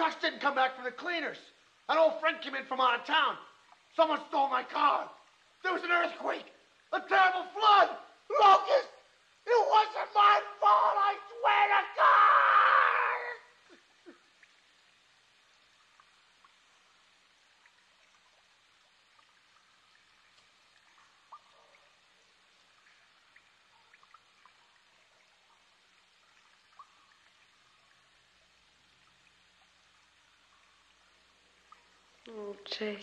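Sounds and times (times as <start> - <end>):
faint steady hiss: 0.0 - 33.0
faint ticks: 13.6 - 32.4.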